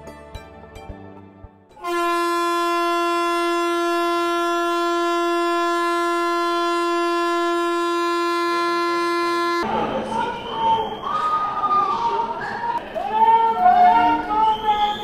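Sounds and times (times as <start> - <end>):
train horn blast: 1.8 - 9.8.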